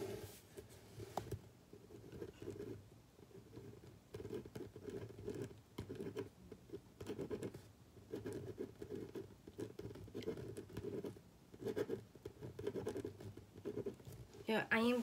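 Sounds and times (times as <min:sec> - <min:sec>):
scratching and rustling on microphone: 0:00.0 - 0:01.4.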